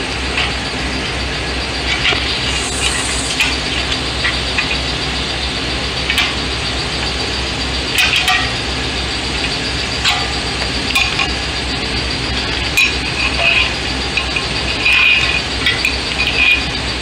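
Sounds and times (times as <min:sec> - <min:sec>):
steady background hum: 0:00.0 - 0:17.0.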